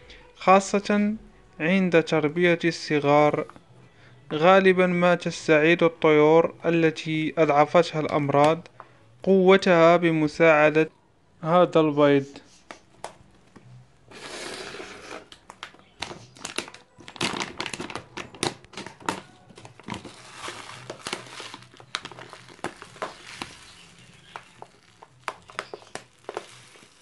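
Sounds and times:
plastic pouch crinkling: 0:15.0 - 0:27.0.

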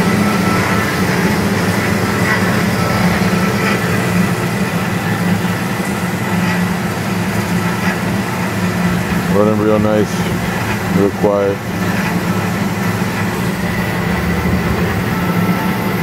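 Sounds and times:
bandsaw hum: 0:00.0 - 0:16.0
faint whine: 0:09.3 - 0:16.0.

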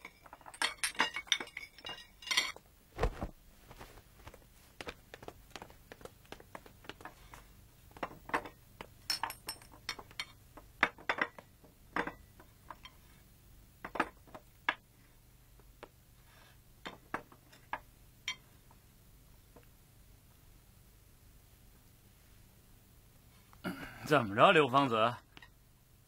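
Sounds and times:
dishes and glasses clinking: 0:00.0 - 0:02.6.

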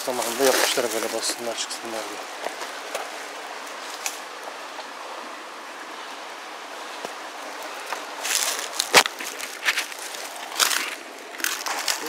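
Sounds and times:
footsteps on rocky ground: 0:00.0 - 0:04.0, 0:07.0 - 0:12.0
steady outdoor hiss: 0:00.0 - 0:12.0.

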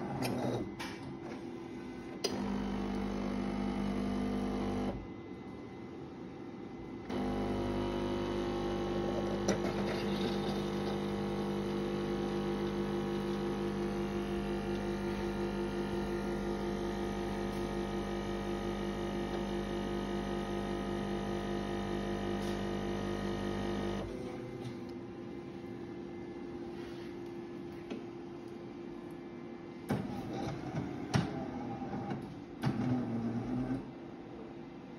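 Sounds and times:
coffee machine humming: 0:00.0 - 0:05.7, 0:06.8 - 0:27.0.

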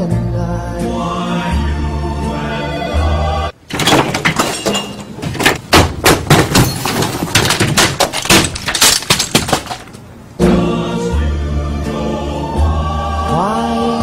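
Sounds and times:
office equipment crashing and smashing: 0:03.7 - 0:10.0.

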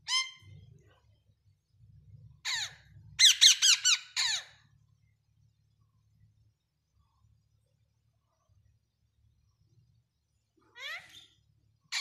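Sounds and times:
parakeets squawking: 0:02.4 - 0:04.6.

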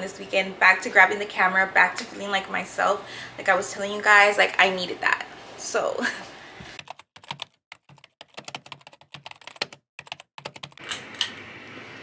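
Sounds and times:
keyboard typing clicks: 0:06.8 - 0:11.0.

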